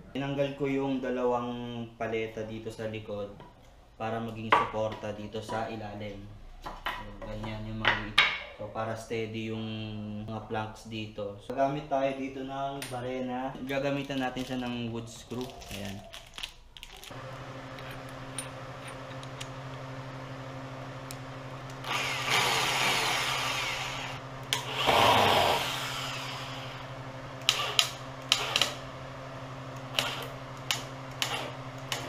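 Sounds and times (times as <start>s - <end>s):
steady low hum: 17.1s - 32.0s
electric drill driving screws: 21.1s - 28.8s, 29.8s - 32.0s.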